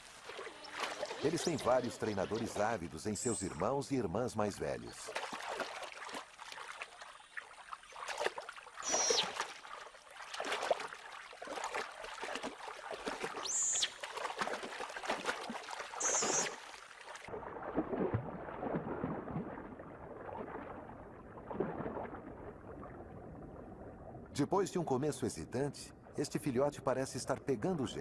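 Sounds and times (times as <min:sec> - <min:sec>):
otters splashing in water: 0:00.0 - 0:22.9.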